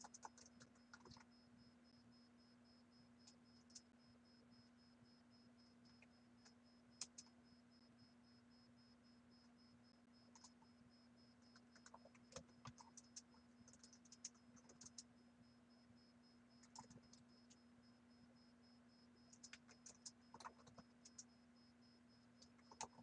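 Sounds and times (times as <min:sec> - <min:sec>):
keyboard typing: 0:00.0 - 0:01.3, 0:05.9 - 0:07.3, 0:10.3 - 0:10.6, 0:11.4 - 0:15.1, 0:16.6 - 0:17.6, 0:19.3 - 0:21.3, 0:22.4 - 0:23.0.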